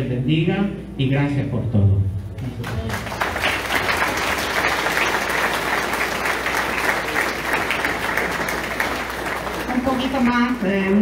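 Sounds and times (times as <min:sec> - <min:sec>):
crowd clapping: 0:02.4 - 0:11.0.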